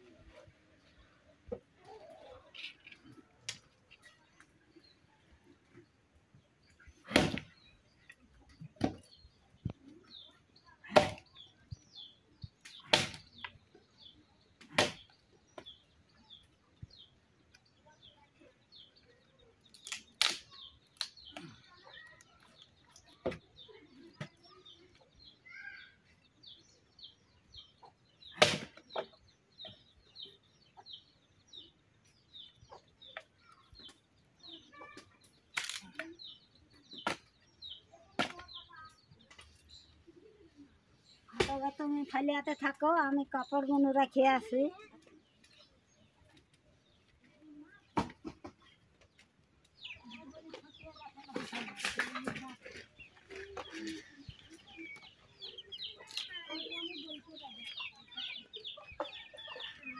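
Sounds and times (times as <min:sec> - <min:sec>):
axe chopping firewood: 0:07.0 - 0:07.6, 0:10.8 - 0:11.3, 0:12.6 - 0:13.3, 0:14.6 - 0:15.7, 0:28.3 - 0:28.8, 0:38.2 - 0:38.4
high bird chirping: 0:48.6 - 0:59.9.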